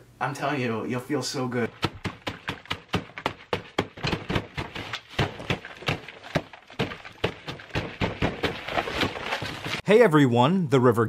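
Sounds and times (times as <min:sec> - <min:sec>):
fists pounding on a table: 0:01.7 - 0:08.7
food splattering: 0:01.7 - 0:09.8.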